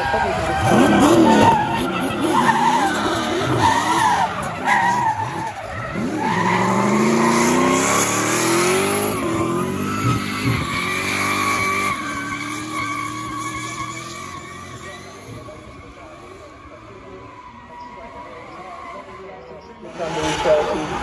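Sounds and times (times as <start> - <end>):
car engine revving hard: 0.0 - 15.5
tyres screeching: 0.0 - 16.1.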